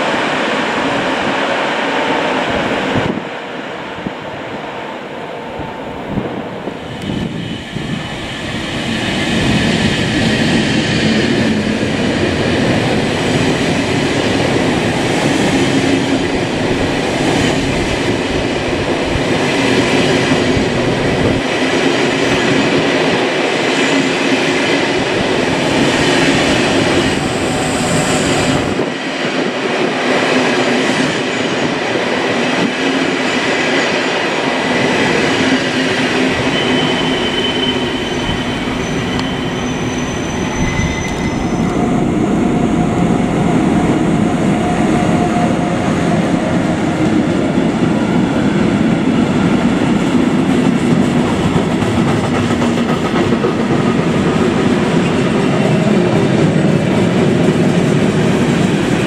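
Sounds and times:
freight train passing: 0.0s - 59.0s
train coaches rolling on rails: 6.1s - 59.0s
high wheel squeals: 36.3s - 41.8s.

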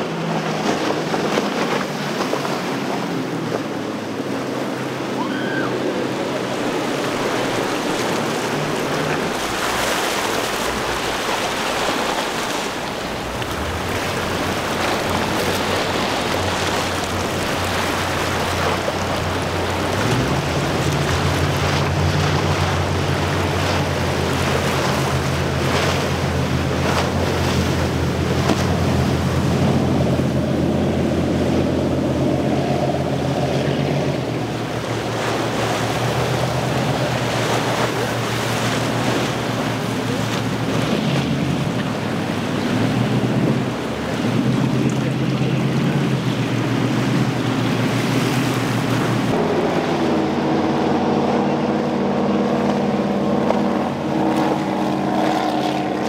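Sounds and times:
low engine drone: 0.0s - 56.0s
powerboats running at speed: 0.0s - 56.0s.

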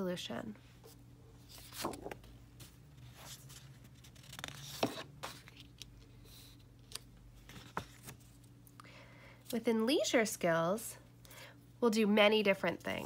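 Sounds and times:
paper rustling: 1.4s - 8.4s.

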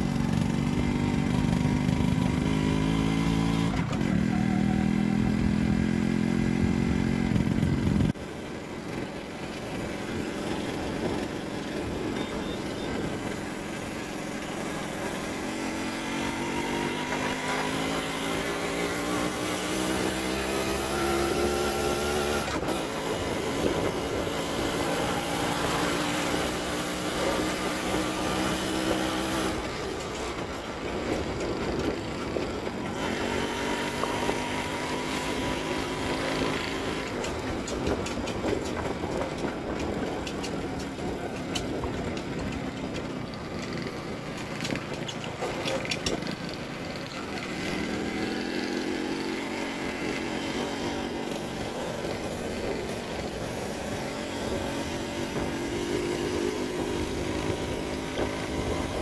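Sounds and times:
two-stroke motorcycle engine: 0.0s - 59.0s.

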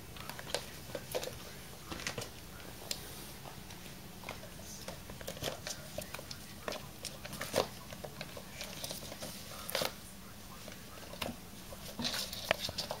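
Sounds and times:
kitten paws tapping and scratching: 0.0s - 13.0s.

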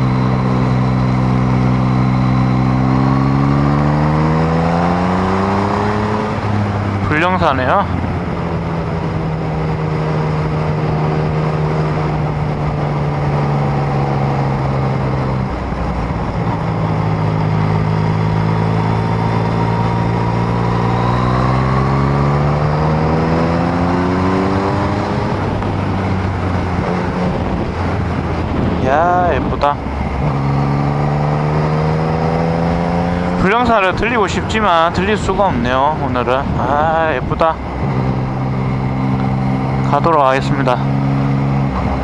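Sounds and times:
motorcycle engine running: 0.0s - 42.0s
wind rush: 23.2s - 39.8s.

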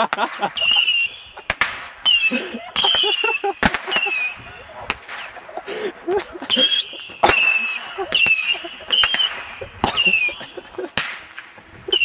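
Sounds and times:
firework cracks: 0.0s - 5.7s, 6.4s - 12.0s
firework rocket whistles: 0.5s - 5.4s, 6.5s - 10.6s.

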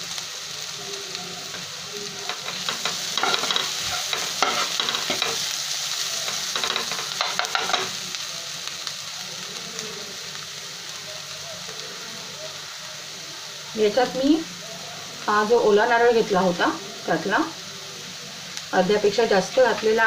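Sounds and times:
onions sizzling in a pan: 0.0s - 20.0s
steel ladle scraping a pan: 2.3s - 5.4s.

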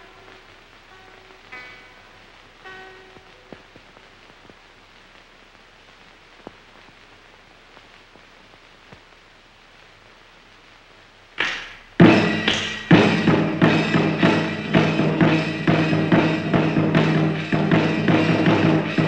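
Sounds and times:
faint crackles: 0.0s - 13.2s
old film soundtrack hiss: 0.0s - 19.0s
loud drum hit: 11.4s - 19.0s.

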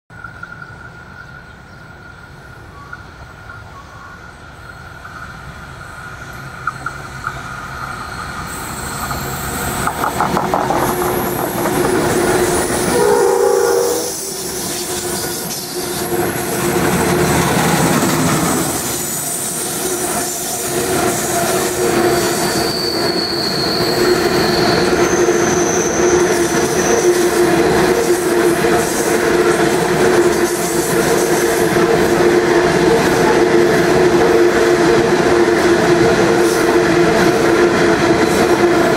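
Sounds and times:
diesel locomotives hauling train: 0.1s - 38.9s
high wheel squeals: 7.7s - 16.6s, 17.9s - 27.4s
wagons rumbling and clattering: 9.7s - 12.8s.

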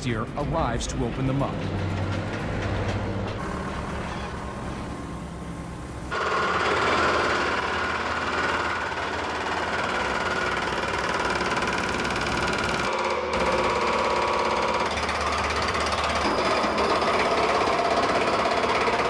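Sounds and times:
diesel engine running: 0.0s - 12.8s
hydraulic breaker hammering concrete: 6.1s - 19.0s.

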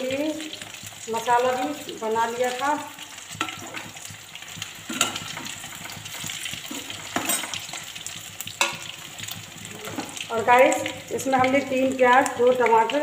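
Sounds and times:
potatoes sizzling in hot oil: 0.0s - 13.0s
metal spoon clinking on pan: 4.9s - 6.0s, 6.7s - 7.8s, 8.5s - 8.9s.

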